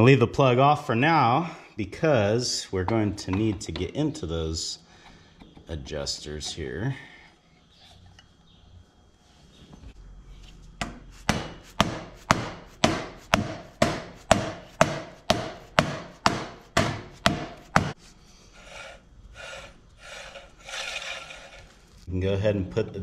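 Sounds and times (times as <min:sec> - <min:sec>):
knocking on brake drum: 0:10.8 - 0:18.0
metal scraping: 0:18.5 - 0:22.1.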